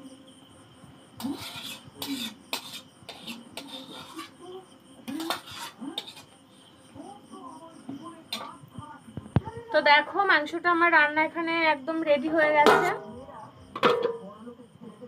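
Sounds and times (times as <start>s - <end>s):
insect trill: 0.0s - 15.0s
metal spatula scraping wok: 1.2s - 6.4s, 8.3s - 8.6s, 12.2s - 13.0s.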